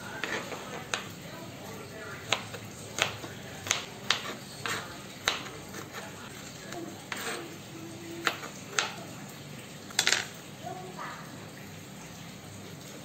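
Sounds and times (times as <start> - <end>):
knife chopping on plastic board: 0.0 - 1.2, 2.0 - 7.4, 8.2 - 9.0.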